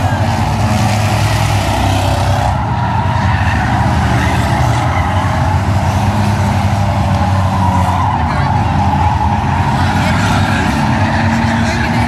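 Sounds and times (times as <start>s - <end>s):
race car engines droning: 0.0s - 12.0s.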